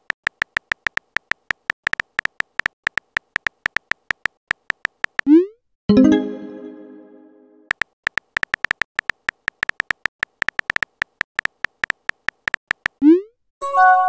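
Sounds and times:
phone keyboard tap clicks: 0:07.7 - 0:13.0.

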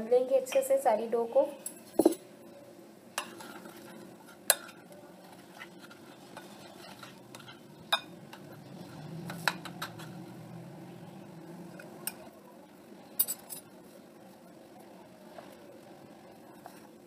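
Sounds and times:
spoon scraping in glass bowl: 0:05.5 - 0:08.1.

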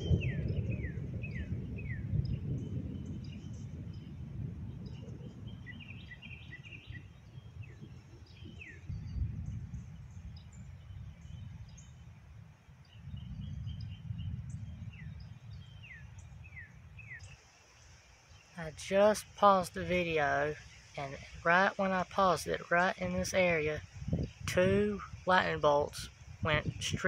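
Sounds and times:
distant thunder rumble: 0:00.0 - 0:11.8, 0:13.0 - 0:17.2
birds chirping: 0:00.0 - 0:27.0.

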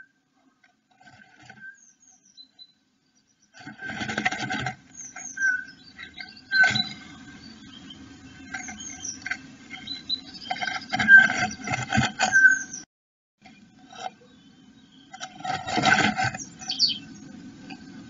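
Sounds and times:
bird scratching nest material: 0:00.8 - 0:01.8, 0:03.5 - 0:12.8, 0:15.1 - 0:17.2.

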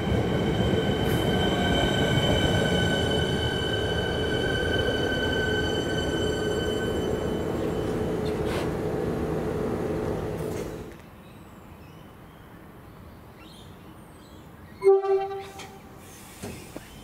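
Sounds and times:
electric train humming and whining: 0:00.0 - 0:11.0.

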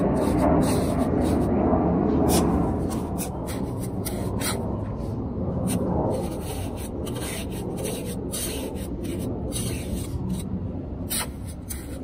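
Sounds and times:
trowel scraping wet cement: 0:02.3 - 0:04.7, 0:05.6 - 0:10.5, 0:11.1 - 0:12.0.

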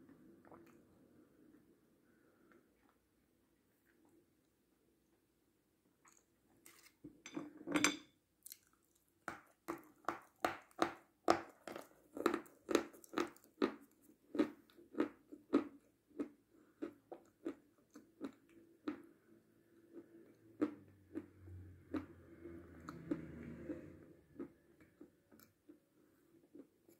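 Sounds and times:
chocolate crunching chews: 0:08.4 - 0:10.8, 0:11.4 - 0:26.9.

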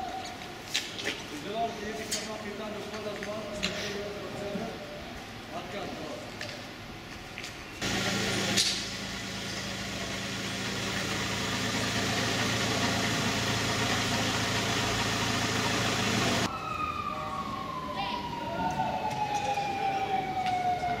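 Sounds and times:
engine humming: 0:07.8 - 0:16.5
siren wailing: 0:16.4 - 0:21.0.

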